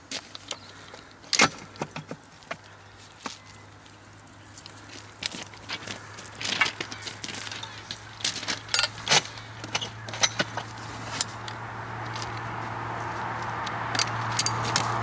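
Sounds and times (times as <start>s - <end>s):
boots on railway ballast: 0.0s - 15.0s
metal pole fittings clattering: 8.5s - 11.4s, 14.0s - 15.0s.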